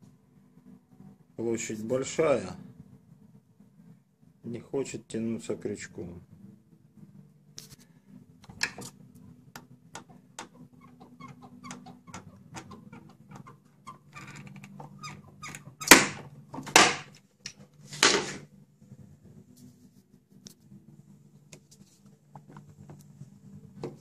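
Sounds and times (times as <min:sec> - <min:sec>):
low steady hum: 0:00.0 - 0:24.0
dent puller clicks and creaks: 0:09.6 - 0:16.2.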